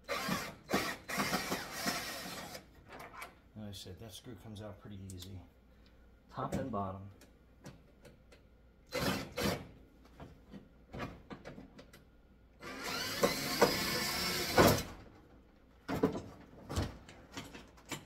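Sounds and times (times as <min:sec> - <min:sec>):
cordless drill driving screw: 0:00.1 - 0:02.6, 0:08.9 - 0:09.6, 0:12.6 - 0:14.8.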